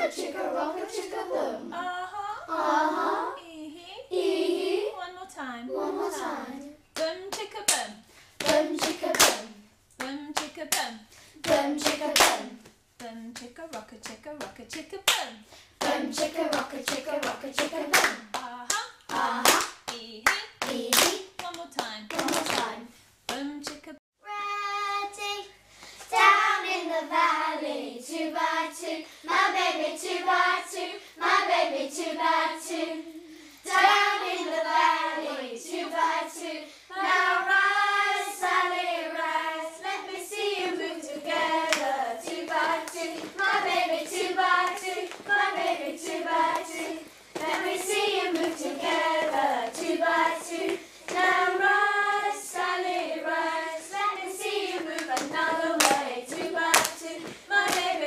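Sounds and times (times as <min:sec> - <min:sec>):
children singing: 0:00.0 - 0:03.4, 0:04.1 - 0:05.0, 0:05.7 - 0:06.7, 0:26.3 - 0:58.0
hand claps: 0:07.0 - 0:22.7, 0:55.0 - 0:57.9.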